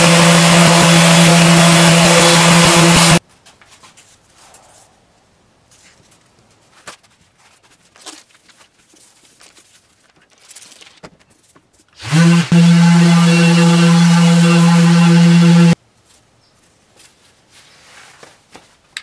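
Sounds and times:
electric sander: 0:00.0 - 0:03.2, 0:12.0 - 0:15.8.

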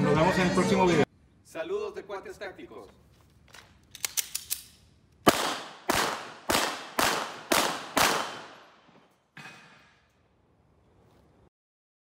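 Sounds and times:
handgun clicks: 0:03.5 - 0:05.3
pistol shots: 0:04.0 - 0:08.9.

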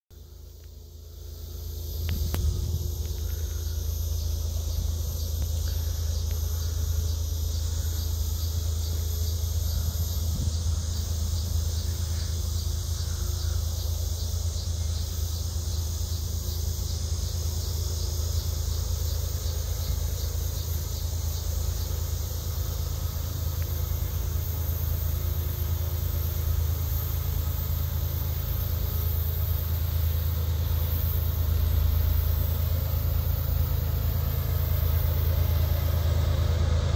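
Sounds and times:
diesel locomotive rumble: 0:00.1 - 0:36.9
insects chirping: 0:00.1 - 0:36.9.

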